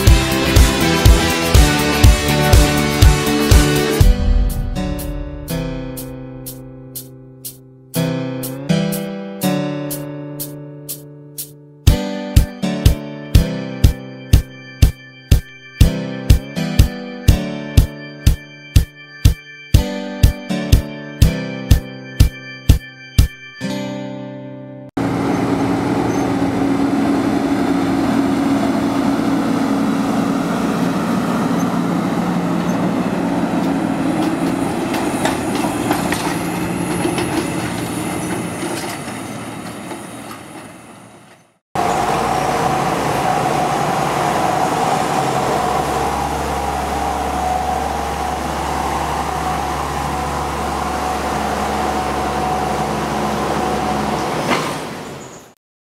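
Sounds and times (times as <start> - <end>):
combine harvester drone: 0.0 - 6.5, 25.0 - 41.2, 41.8 - 55.1
high machine whine: 41.8 - 54.3.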